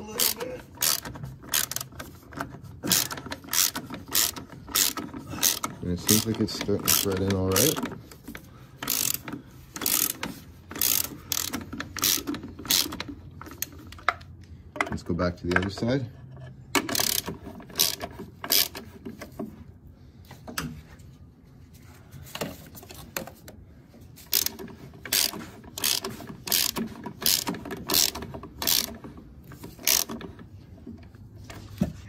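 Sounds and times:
ratchet wrench clicking: 0.2s - 7.9s, 8.8s - 14.1s, 16.8s - 18.9s, 24.2s - 30.5s.

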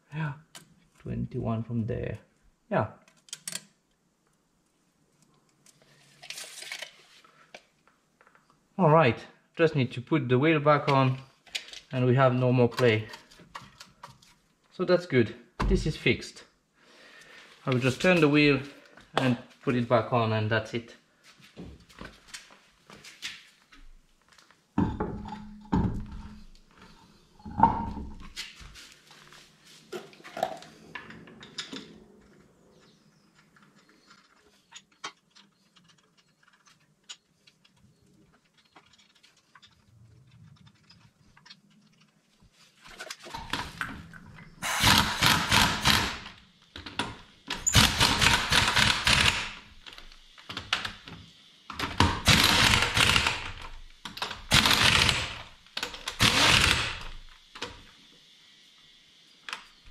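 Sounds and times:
impact wrench rattling: 44.6s - 46.3s, 47.5s - 49.6s, 52.2s - 53.7s, 54.5s - 57.2s.

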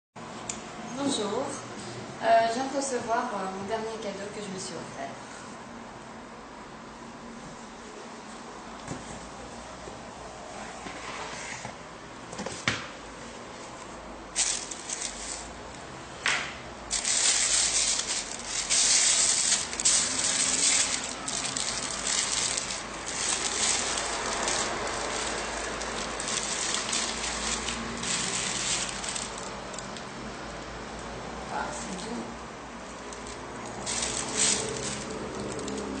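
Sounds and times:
tissue paper rustling: 14.4s - 15.6s, 16.9s - 29.9s, 33.0s - 36.0s.

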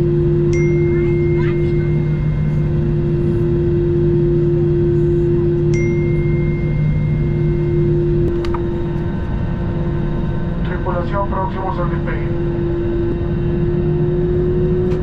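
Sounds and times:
airplane cabin drone: 0.0s - 15.0s
faint high tone: 0.5s - 3.1s.

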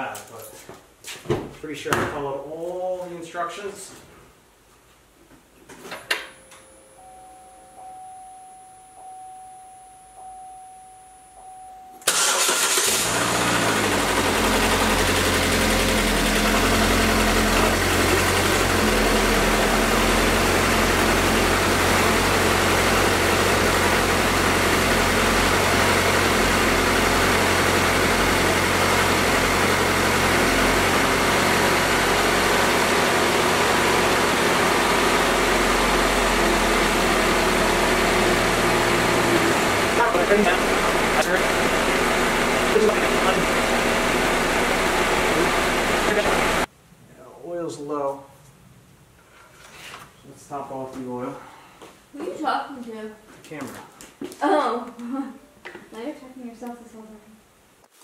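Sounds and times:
car engine starting and idling: 12.0s - 46.7s.

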